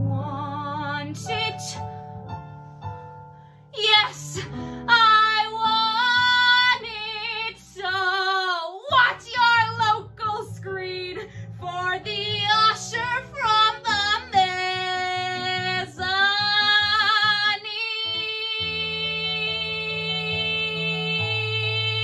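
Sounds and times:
woman singing: 0.0s - 1.9s, 3.8s - 22.0s
instrumental accompaniment: 9.0s - 22.0s.

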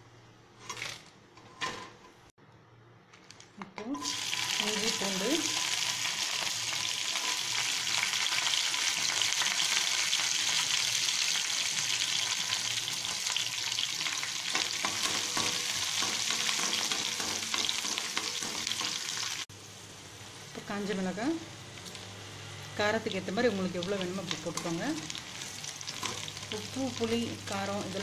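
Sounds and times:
garlic and ginger sizzling in oil: 3.9s - 28.0s
metal spoon scraping a pan: 24.5s - 26.5s.

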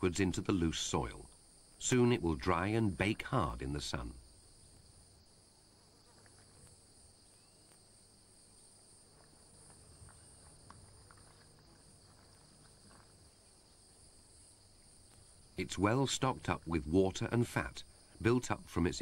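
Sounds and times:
crickets trilling: 0.0s - 19.0s
soil scratching and ticking: 5.8s - 8.0s, 8.7s - 19.0s.

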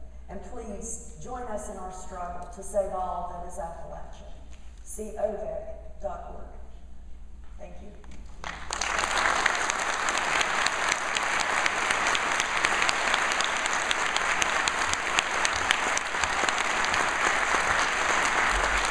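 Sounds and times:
audience applauding: 8.4s - 18.9s.

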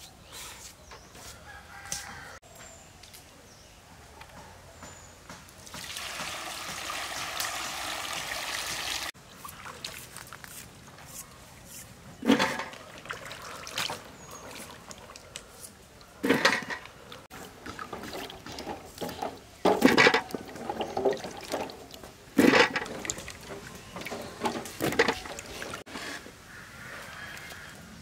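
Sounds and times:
water trickling: 5.6s - 10.6s, 20.2s - 25.8s
water splashing and sloshing: 5.6s - 26.2s.

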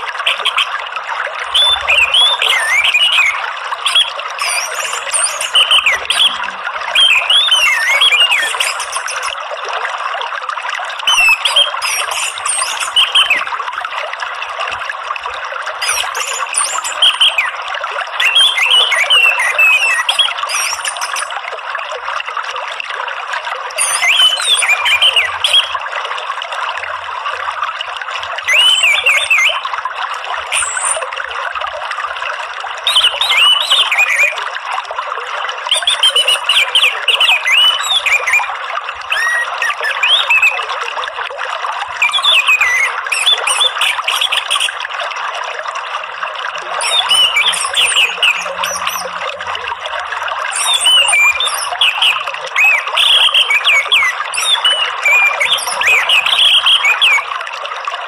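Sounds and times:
running water: 0.0s - 58.0s
thrush singing: 46.8s - 49.3s.

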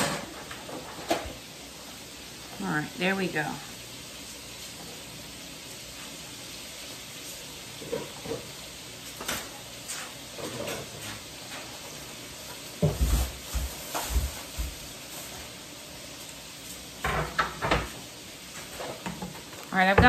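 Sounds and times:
kitchen knocks and clunks: 0.0s - 1.4s, 12.8s - 14.8s, 17.0s - 18.0s
food frying sizzle: 0.0s - 20.0s.

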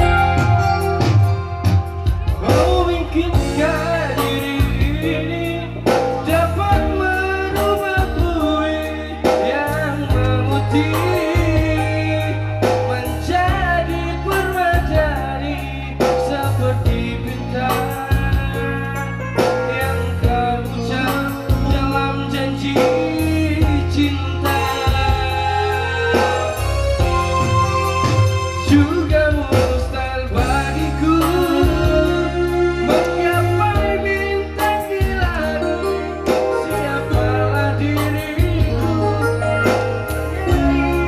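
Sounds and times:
drums: 0.0s - 41.0s
person singing: 0.0s - 41.0s
stepping bass line: 0.0s - 41.0s.

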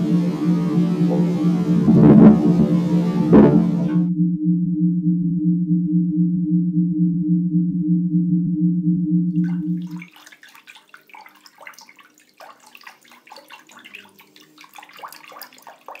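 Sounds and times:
loud low pulsing hum: 0.0s - 9.9s
small clicks and splashes: 9.4s - 16.0s
water lapping in a pool: 9.4s - 16.0s.

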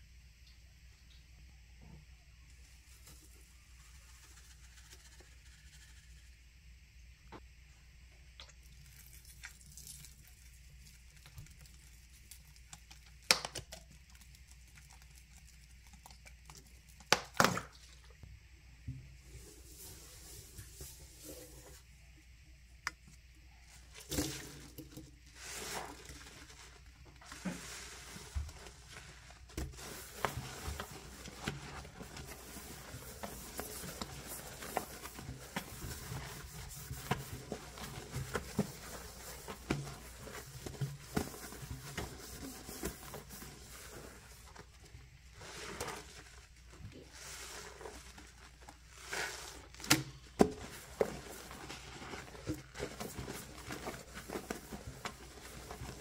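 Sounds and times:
sponge scrubbing a steel sink: 19.2s - 21.9s, 25.3s - 49.8s, 50.4s - 56.0s
sponge squeezed out: 45.3s - 56.0s.

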